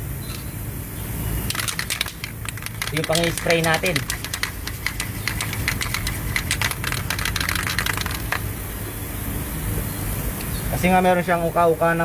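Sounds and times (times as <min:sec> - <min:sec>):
steady low hum: 0:00.0 - 0:10.6
aerosol can clicks and rattles: 0:01.5 - 0:08.5
can knocking on metal: 0:01.5 - 0:08.5.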